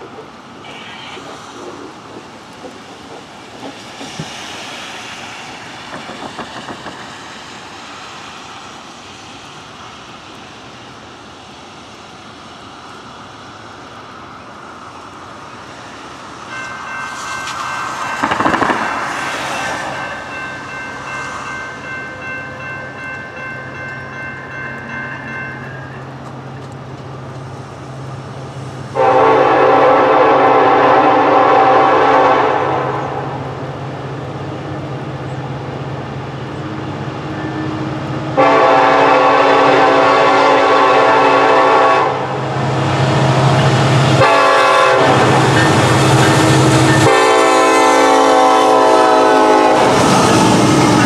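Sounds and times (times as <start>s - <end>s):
diesel locomotive drone: 0.0s - 51.0s
locomotive horn chord: 29.0s - 33.4s, 38.3s - 42.4s, 44.2s - 50.2s.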